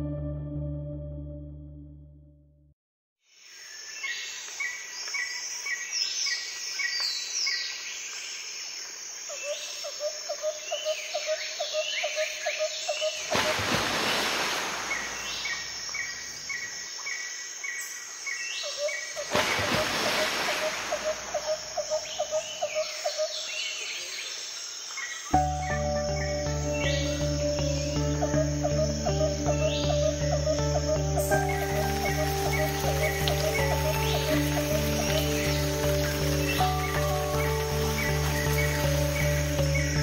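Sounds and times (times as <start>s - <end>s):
birds chirping: 10.6s - 40.0s
bird pulsed trill: 18.7s - 23.6s, 25.2s - 40.0s
background hiss: 31.2s - 40.0s.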